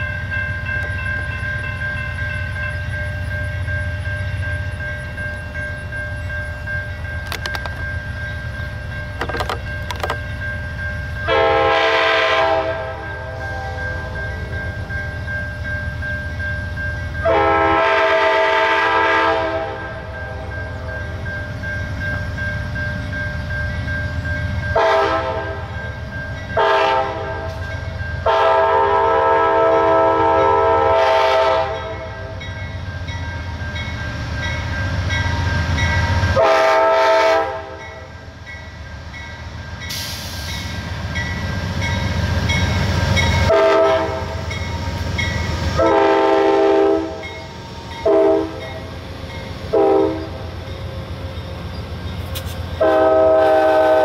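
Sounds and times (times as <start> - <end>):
train rumble: 0.0 - 54.0
locomotive air horn blasts: 11.2 - 14.1, 17.2 - 20.5, 24.8 - 25.7, 26.6 - 27.6, 28.2 - 32.2, 36.3 - 37.8, 43.5 - 44.4, 45.7 - 47.3, 48.0 - 48.7, 49.7 - 50.5, 52.8 - 54.0.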